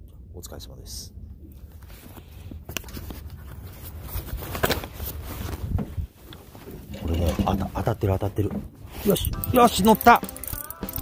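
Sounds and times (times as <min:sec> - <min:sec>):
low steady rumble: 0:00.0 - 0:04.2.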